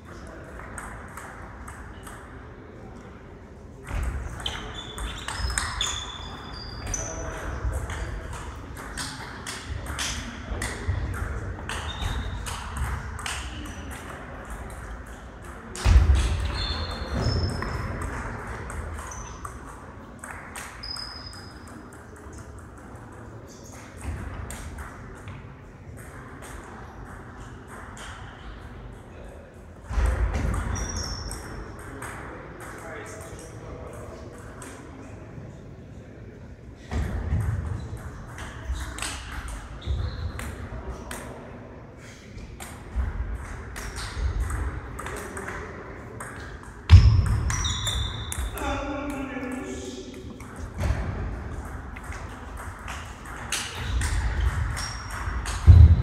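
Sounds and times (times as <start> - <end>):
short high squeaks: 4.4 - 7.1, 47.5 - 48.5
murmur of voices: 21.8 - 56.0.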